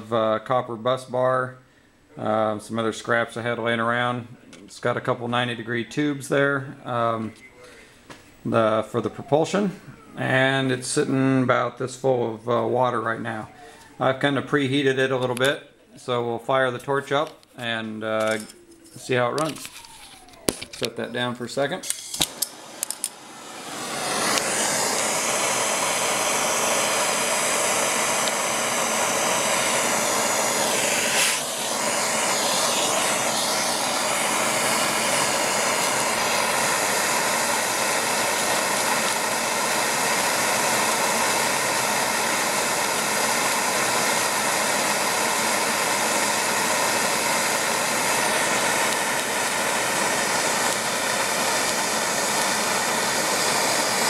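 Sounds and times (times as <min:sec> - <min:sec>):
gas torch hissing roar: 0:21.6 - 0:54.0.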